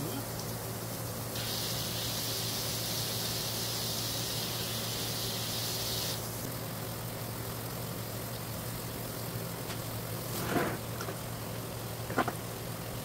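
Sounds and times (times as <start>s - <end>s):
garden hose spraying water: 0.0s - 13.0s.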